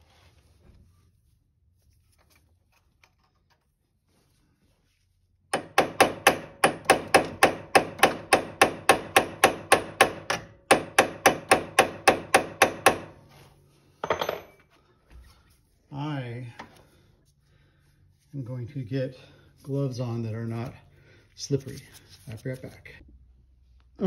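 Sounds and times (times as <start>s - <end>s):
hammer striking metal pin: 5.5s - 13.2s, 14.0s - 14.6s.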